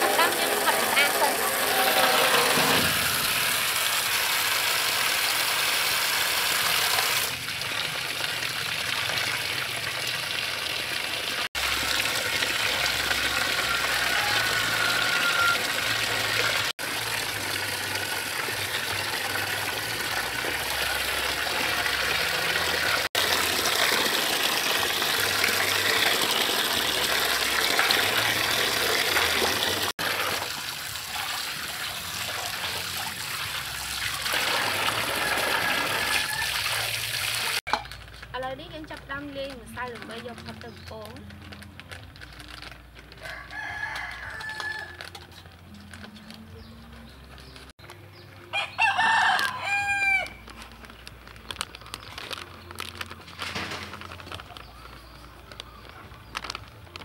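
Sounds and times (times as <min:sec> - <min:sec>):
tap water pouring into metal basin: 0:00.0 - 0:38.0.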